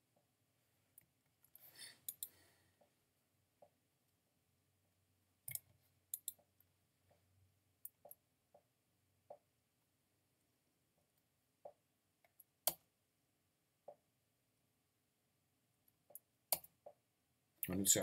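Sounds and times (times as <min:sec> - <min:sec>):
keyboard and mouse clicks: 0:01.0 - 0:02.4, 0:05.4 - 0:06.7, 0:11.6 - 0:12.9, 0:15.9 - 0:17.0.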